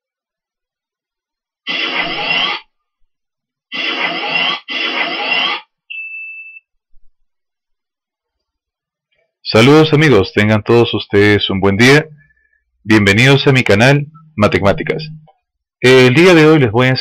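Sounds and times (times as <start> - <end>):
short high beep: 5.9 - 6.6.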